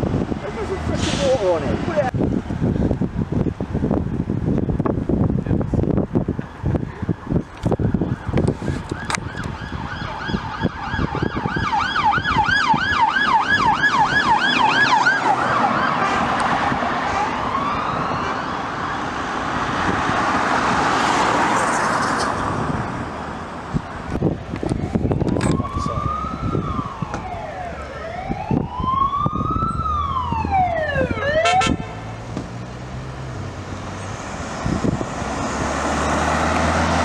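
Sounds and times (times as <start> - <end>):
car engine and tyre noise: 0.0 - 37.0
wind buffeting microphone: 0.0 - 37.0
police siren yelping: 8.0 - 19.2, 25.2 - 32.0.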